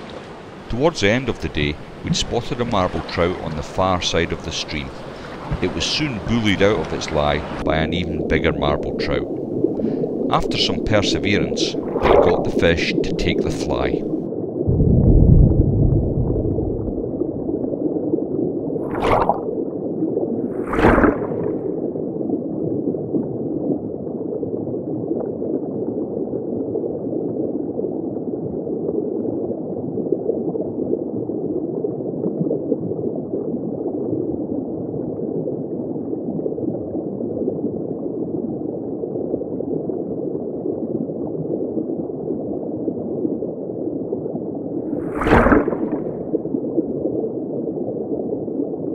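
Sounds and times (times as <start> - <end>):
muffled underwater river gurgling: 0.0 - 48.9
brief splashes: 4.6 - 7.6, 11.7 - 14.2, 18.8 - 19.5, 20.5 - 21.8, 44.8 - 46.5.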